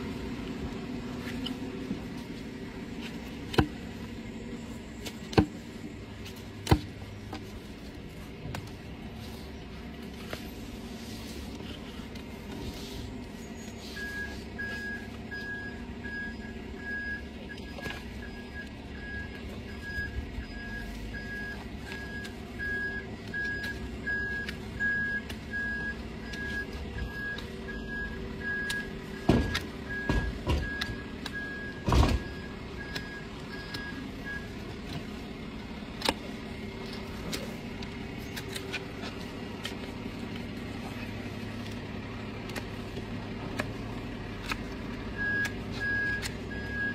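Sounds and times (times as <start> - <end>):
engine rumble: 0.0 - 46.9
reversing alarm beeping: 13.9 - 34.6, 45.1 - 46.9.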